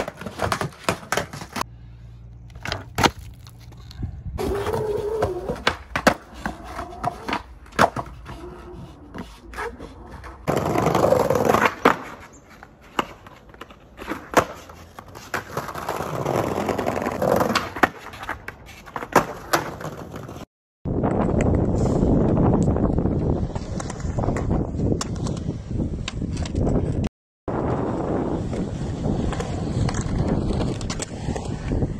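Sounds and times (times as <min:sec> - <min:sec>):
skateboard rolling over paving: 0:04.4 - 0:12.3, 0:13.3 - 0:20.4, 0:22.9 - 0:31.9.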